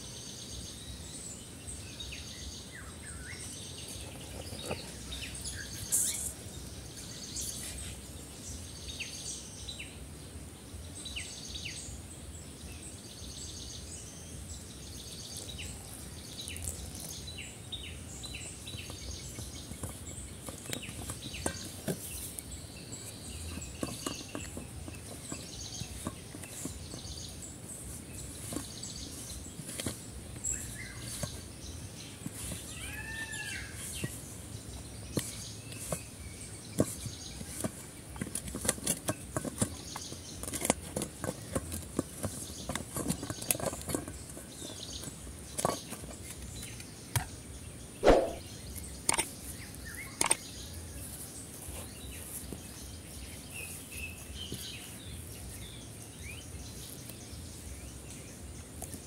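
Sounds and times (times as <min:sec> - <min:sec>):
bird chirping: 0:00.0 - 0:10.0, 0:10.7 - 0:38.0, 0:42.3 - 0:59.0
hands working dough in metal bowl: 0:18.2 - 0:47.3.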